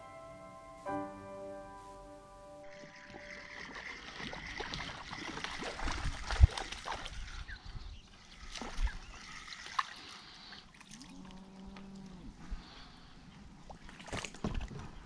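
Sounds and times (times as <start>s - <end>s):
fish splashing at the surface: 3.3s - 7.4s.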